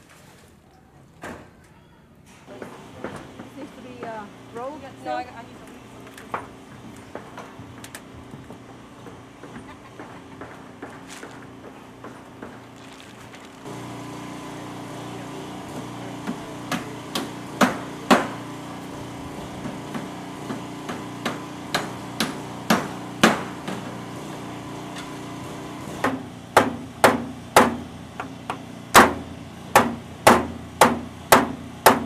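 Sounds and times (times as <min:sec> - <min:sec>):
hammer striking nails: 0:16.2 - 0:18.6, 0:19.6 - 0:24.1, 0:26.0 - 0:32.0.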